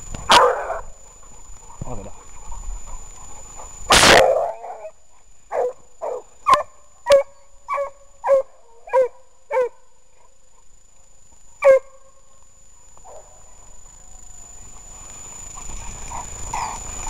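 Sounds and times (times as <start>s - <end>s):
dog barking: 0.3s - 0.9s, 3.9s - 9.8s, 11.6s - 12.0s
loud short burst of noise: 3.9s - 4.2s.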